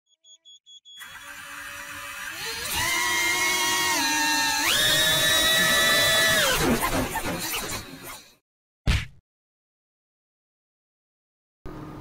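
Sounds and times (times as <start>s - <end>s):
small motor whine: 1.0s - 8.4s.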